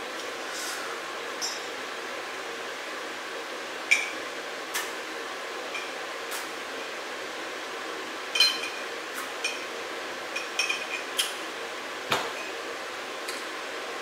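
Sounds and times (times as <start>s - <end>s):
utensil clinking against dish: 10.4s - 11.3s.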